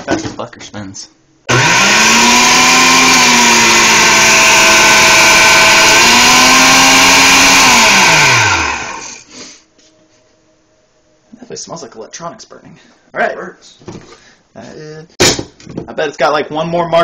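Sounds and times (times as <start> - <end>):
blender motor whining: 1.5 - 9.3.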